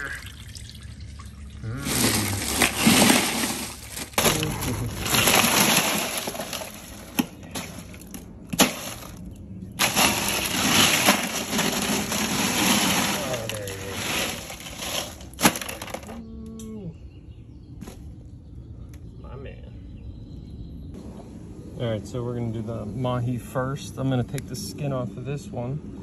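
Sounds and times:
ice crunching and clattering: 0:01.6 - 0:16.2.

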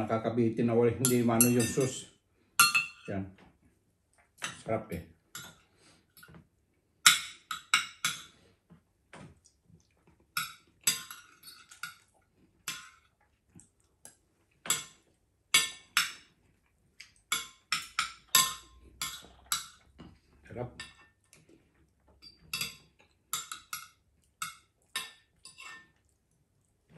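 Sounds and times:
cutlery clinking on a plate: 0:01.0 - 0:02.0, 0:02.6 - 0:03.1, 0:07.1 - 0:08.3, 0:10.4 - 0:12.1, 0:15.6 - 0:16.3, 0:17.3 - 0:19.9, 0:22.2 - 0:26.0.

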